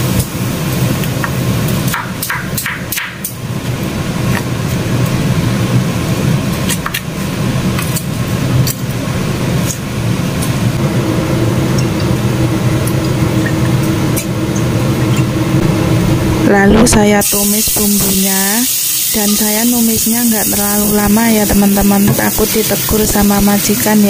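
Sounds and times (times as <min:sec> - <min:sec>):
low machine hum: 0:00.0 - 0:24.0.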